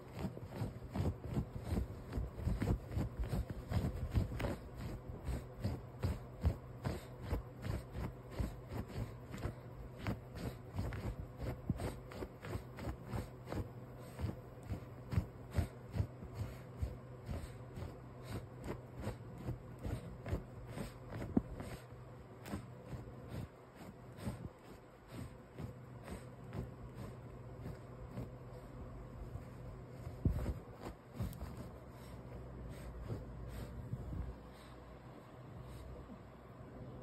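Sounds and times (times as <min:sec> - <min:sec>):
puppy scratching at blanket: 0:00.0 - 0:36.5
faint steady hum: 0:00.0 - 0:37.0.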